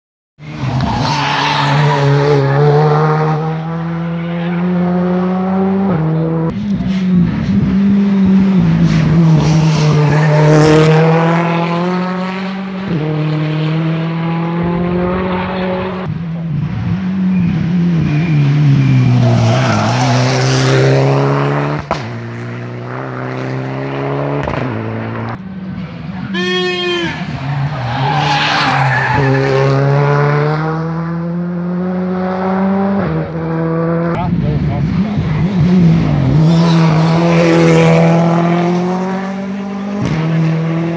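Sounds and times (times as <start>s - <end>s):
car engine revving: 0.4s - 40.9s.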